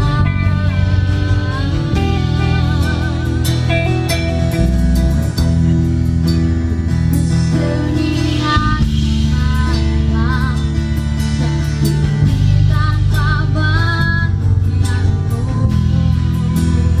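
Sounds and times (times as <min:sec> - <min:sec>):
woman singing with vibrato: 0:00.0 - 0:04.4, 0:07.5 - 0:11.6, 0:12.2 - 0:17.0
acoustic guitar strumming: 0:00.0 - 0:17.0
drum kit: 0:00.0 - 0:17.0
electric guitar: 0:00.0 - 0:17.0.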